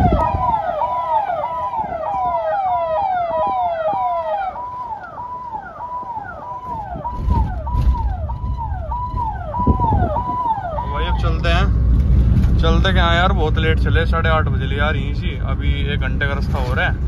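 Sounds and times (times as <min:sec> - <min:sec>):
electronic siren wailing: 0:00.0 - 0:11.5
low rumble: 0:06.8 - 0:17.0.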